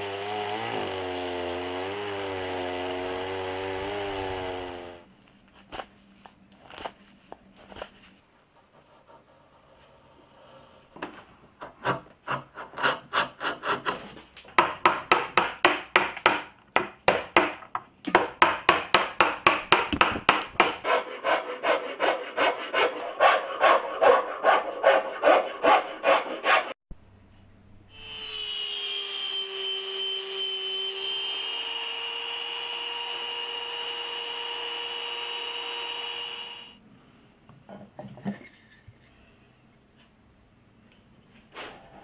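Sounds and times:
hand tool working wood: 0.0s - 5.0s, 8.6s - 26.8s
chainsaw cutting wood: 0.0s - 5.1s, 29.5s - 36.8s.

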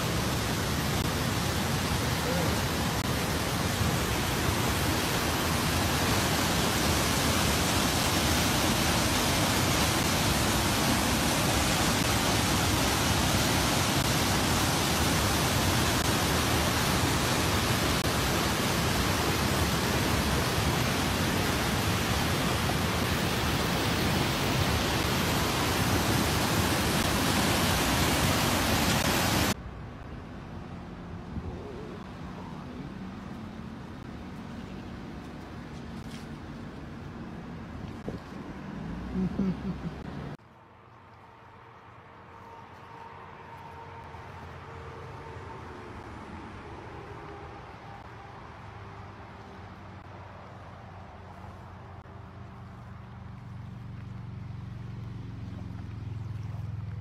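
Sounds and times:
river rushing through canyon: 0.0s - 29.6s
quiet outdoor background: 0.0s - 57.0s.

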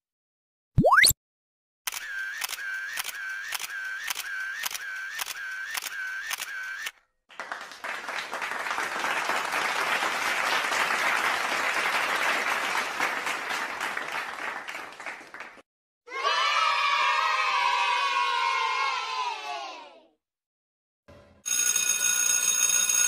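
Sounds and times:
camera shutter clicks: 1.9s - 6.9s
applause: 7.3s - 15.7s.

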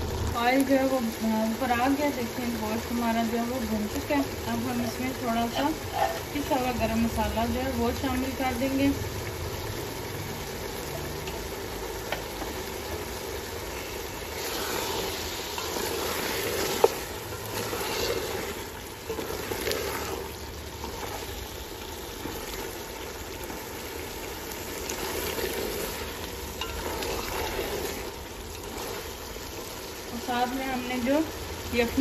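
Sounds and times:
beef sizzling in oil: 0.0s - 32.0s
wooden spoon scraping pot: 13.7s - 31.2s.

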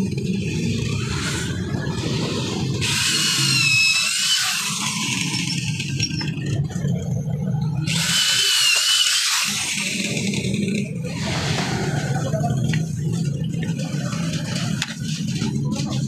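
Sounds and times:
electric drill whining: 0.8s - 6.3s, 7.8s - 11.6s.

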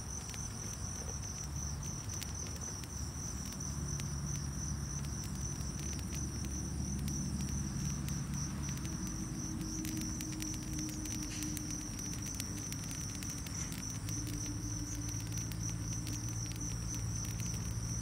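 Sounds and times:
crackles of dry twigs on fire: 0.0s - 18.0s
insects trilling: 0.0s - 18.0s.

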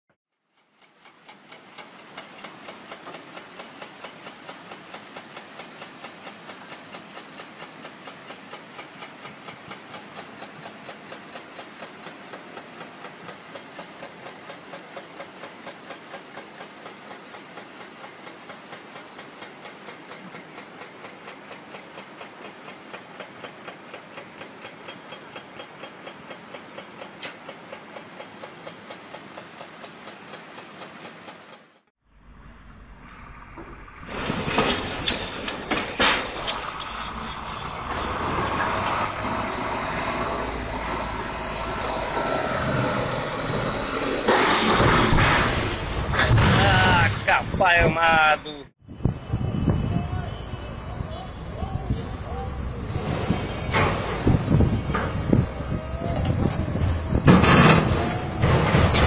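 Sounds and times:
even mechanical ticking: 0.3s - 31.9s
crane engine and hydraulics running: 1.2s - 47.6s, 48.8s - 59.0s.

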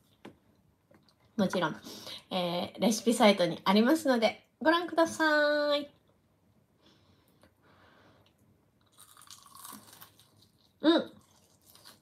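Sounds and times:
crunching and chewing: 8.8s - 12.0s.

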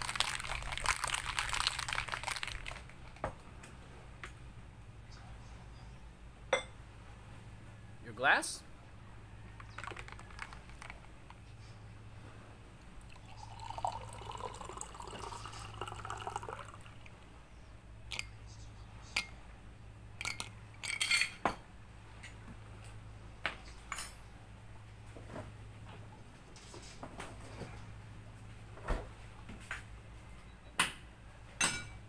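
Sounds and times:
liquid pouring into glass: 13.0s - 17.2s.

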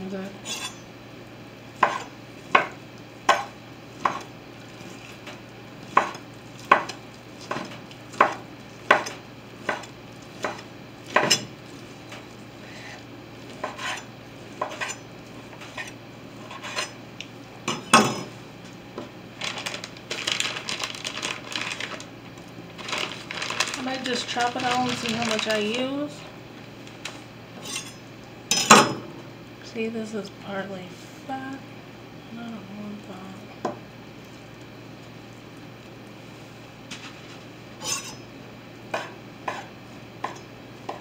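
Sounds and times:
knife chopping on wooden board: 1.8s - 4.3s, 5.9s - 11.5s, 13.6s - 14.0s, 14.6s - 16.9s, 38.9s - 41.0s
plastic glove rustling: 19.2s - 26.2s.

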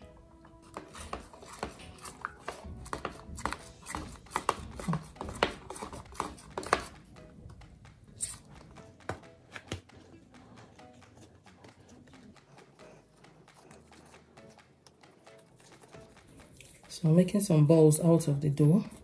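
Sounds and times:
metal spoon tapping plastic jug: 0.6s - 7.7s.

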